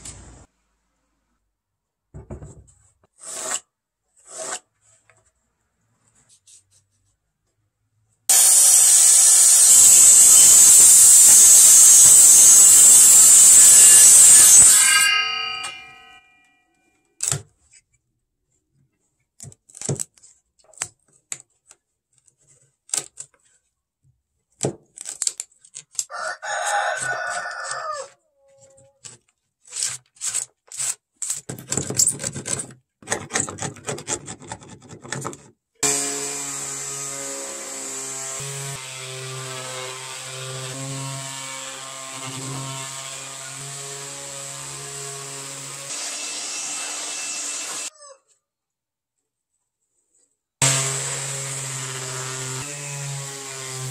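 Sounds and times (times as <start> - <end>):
power tool running: 8.3 - 16.0, 35.8 - 41.0, 50.6 - 53.9
rooster crowing: 26.1 - 28.2, 47.8 - 48.3.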